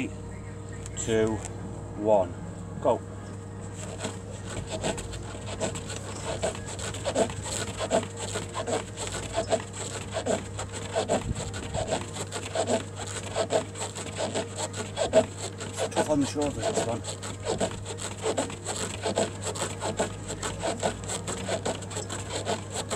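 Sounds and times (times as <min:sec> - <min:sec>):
rustling against exercise mat: 0:03.6 - 0:14.0.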